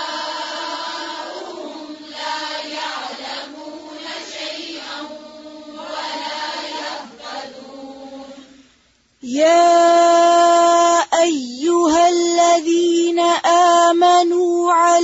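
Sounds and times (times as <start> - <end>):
person chanting: 9.2 - 15.0.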